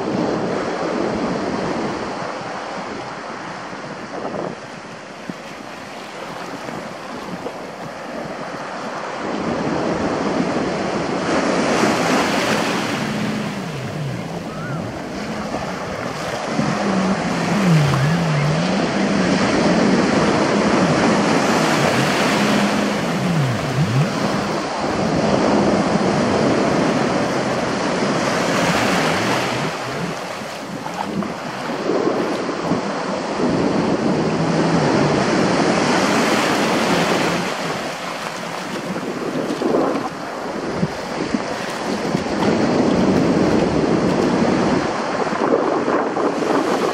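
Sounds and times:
ocean surf washing in: 0:00.0 - 0:46.9
low hum: 0:12.5 - 0:31.6.

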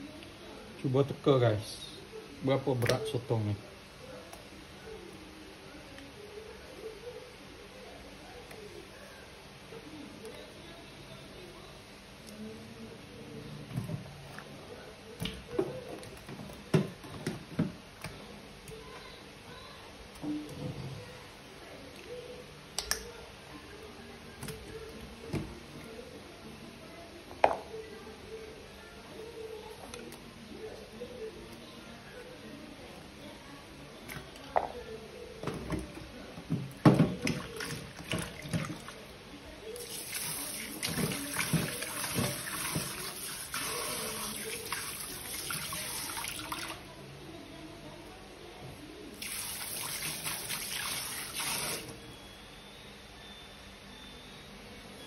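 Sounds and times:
tap water running into sink: 0:39.8 - 0:46.7, 0:49.2 - 0:51.9.

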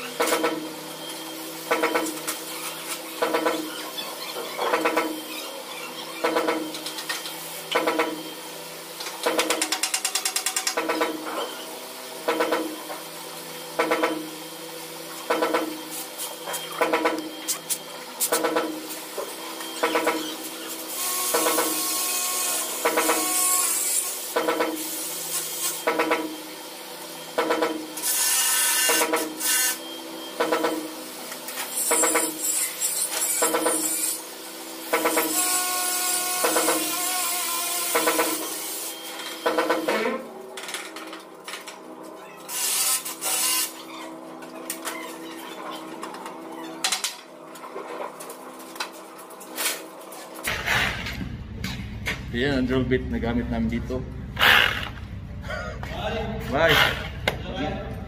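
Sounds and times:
regular pulsing sound: 0:51.2 - 0:58.0
power drill running: 0:54.3 - 0:55.3.

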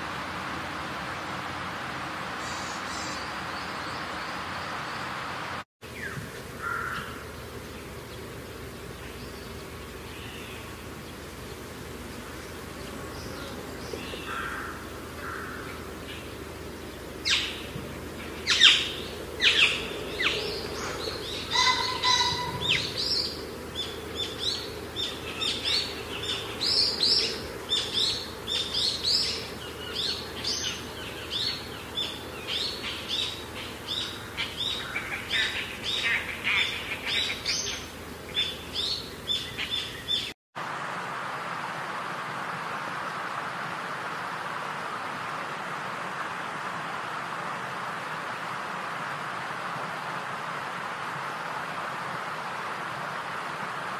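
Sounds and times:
outdoor background noise: 0:00.0 - 0:53.9
small birds chirping: 0:05.9 - 0:40.4.

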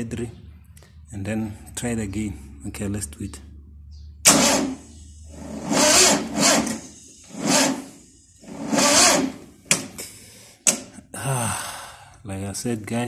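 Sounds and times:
starter motor whirring: 0:04.3 - 0:09.9.

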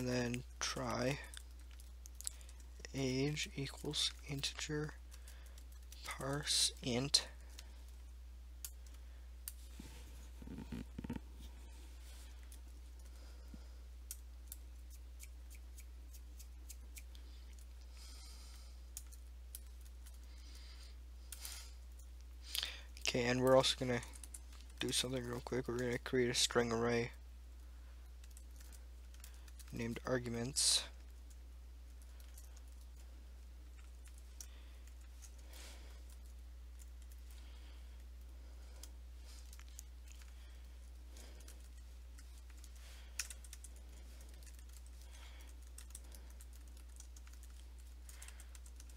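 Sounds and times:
low steady hum: 0:00.0 - 0:48.9
keyboard keys typing: 0:41.4 - 0:48.9.

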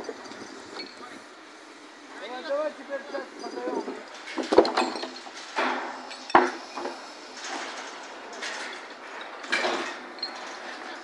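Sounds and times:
light clattering: 0:03.5 - 0:10.6
timber beams clanking: 0:03.6 - 0:11.0.

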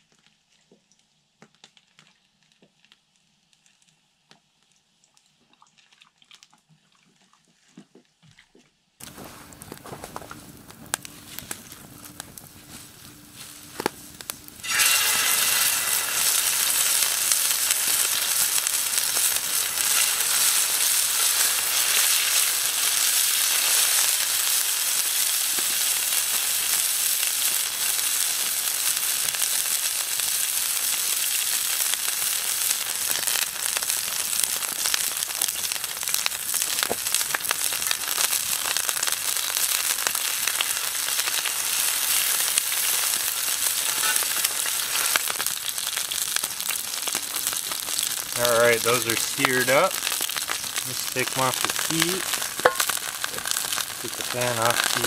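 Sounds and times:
meat sizzling in a pan: 0:09.0 - 0:55.0
steaks hitting hot pan: 0:09.0 - 0:55.0.

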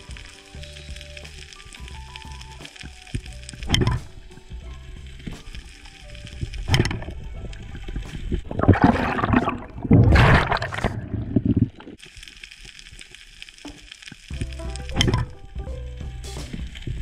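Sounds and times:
water gurgling underwater: 0:06.2 - 0:12.0, 0:14.4 - 0:15.4.

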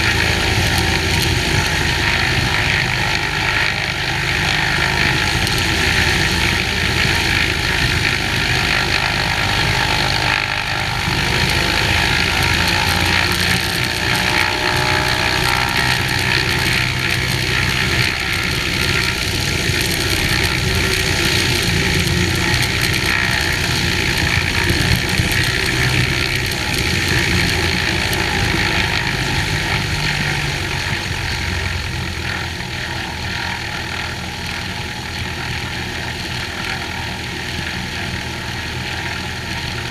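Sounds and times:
airplane engine and propeller: 0:00.0 - 0:39.9.

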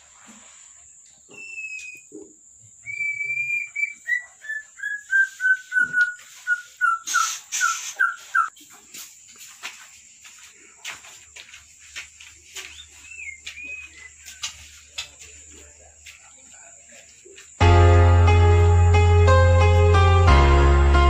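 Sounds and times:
animal high whistled calls: 0:01.3 - 0:08.6, 0:12.6 - 0:14.5.

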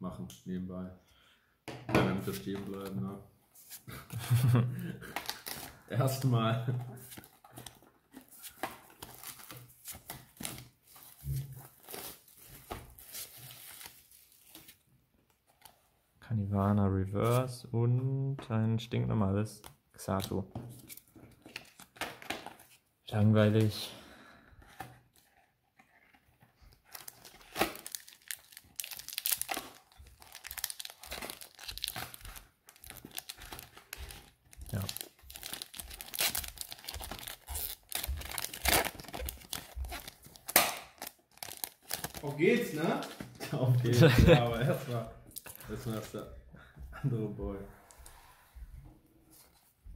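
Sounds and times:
foil wrapper crinkling and tearing: 0:26.8 - 0:42.7.

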